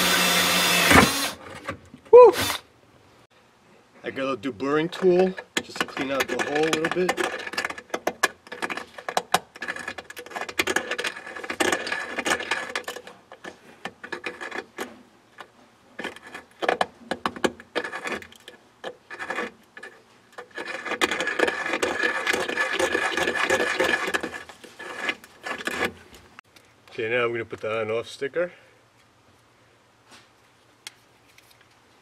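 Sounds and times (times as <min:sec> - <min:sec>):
deburring blade scraping metal: 0:05.0 - 0:15.0, 0:17.6 - 0:26.0.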